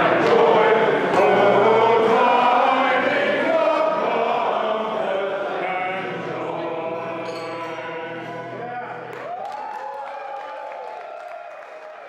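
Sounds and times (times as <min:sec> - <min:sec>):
group of people singing: 0:00.0 - 0:08.6.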